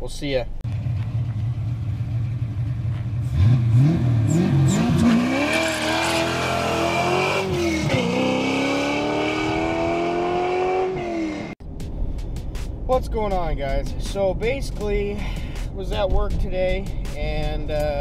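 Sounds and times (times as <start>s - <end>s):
car engine revving and accelerating: 1.1s - 11.6s.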